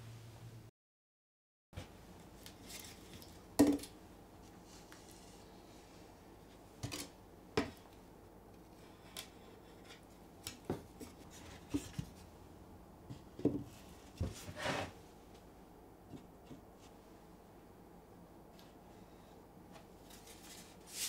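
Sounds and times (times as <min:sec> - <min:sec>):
boards scraping on bench: 0:14.2 - 0:15.0.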